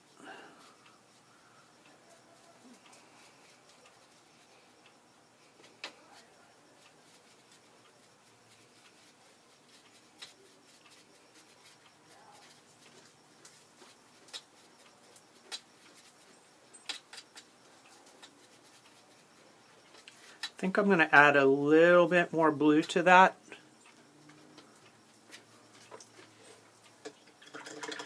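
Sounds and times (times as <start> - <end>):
brush ticking against pan: 0.6 - 28.0
paintbrush scraping foil: 7.0 - 20.0.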